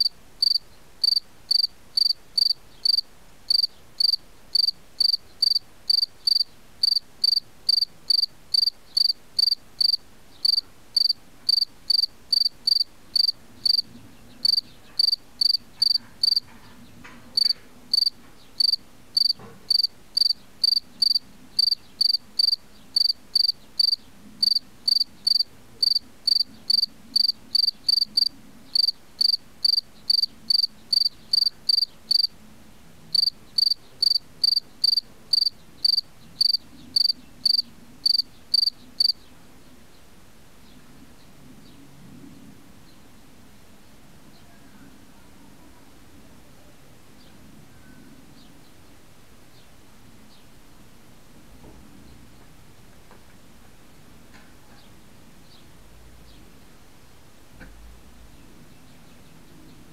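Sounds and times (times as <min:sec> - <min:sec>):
cricket chirping: 0:00.0 - 0:16.4, 0:17.4 - 0:32.3, 0:33.1 - 0:39.2.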